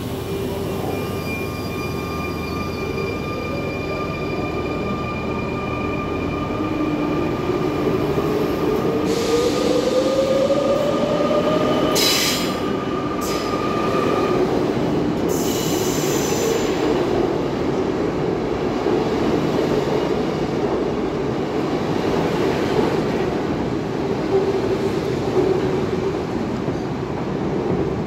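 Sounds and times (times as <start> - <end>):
high wheel squeal: 0.7 - 6.9.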